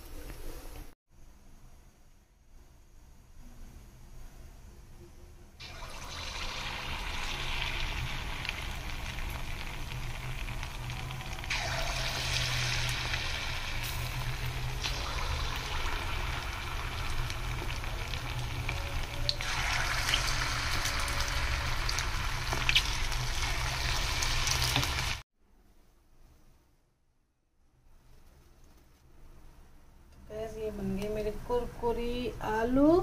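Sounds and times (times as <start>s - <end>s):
food deep-frying in oil: 5.6s - 25.2s.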